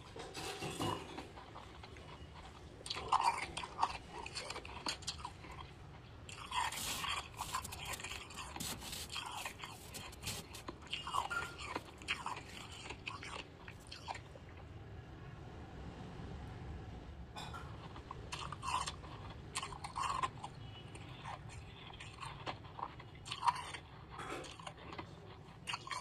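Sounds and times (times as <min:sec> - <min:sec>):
freezer frost crunching: 0:06.3 - 0:14.2.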